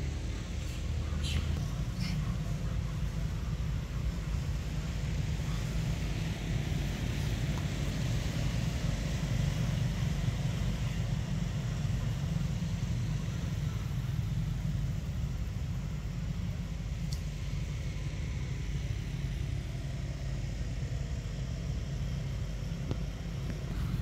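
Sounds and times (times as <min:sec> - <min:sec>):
low rumble: 0:00.0 - 0:24.0
outdoor background hiss: 0:00.0 - 0:24.0
faint click: 0:17.0 - 0:17.3.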